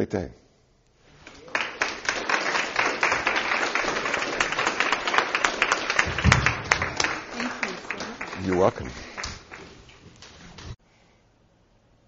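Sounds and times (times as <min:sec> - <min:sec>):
audience applauding: 0:01.2 - 0:10.7.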